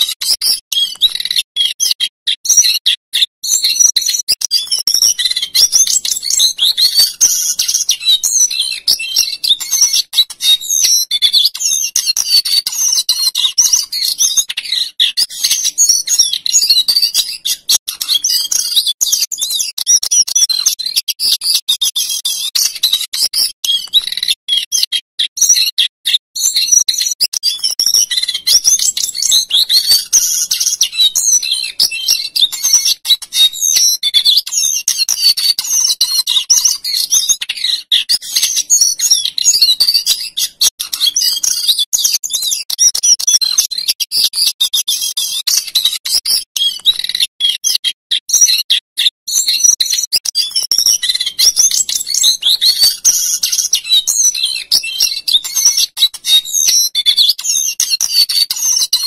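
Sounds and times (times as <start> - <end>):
songbird singing warbles: 0.2 - 44.3.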